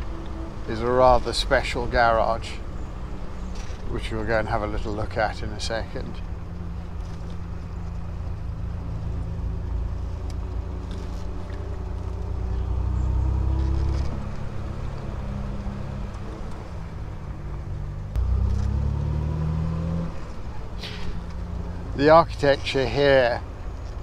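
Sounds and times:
car engine revving while driving: 6.7 - 22.2.

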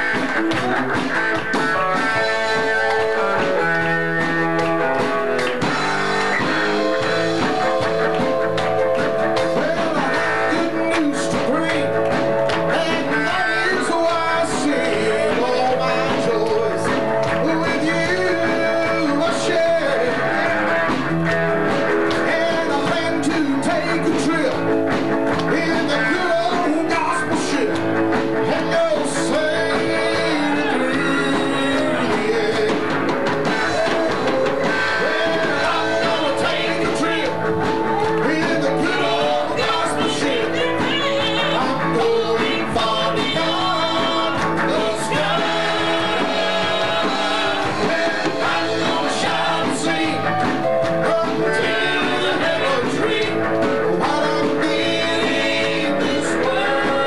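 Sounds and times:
gospel band playing: 0.0 - 57.0
male quartet singing in harmony: 35.0 - 37.2, 38.6 - 50.3, 51.0 - 53.4, 54.0 - 57.0.

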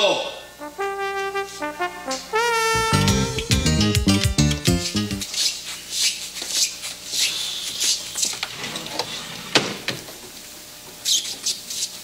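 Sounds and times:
scratchy rubbing strokes: 4.7 - 8.0.

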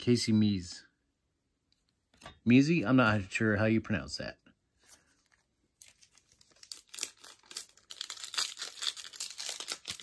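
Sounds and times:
card pack wrapper crinkling: 5.2 - 10.0.

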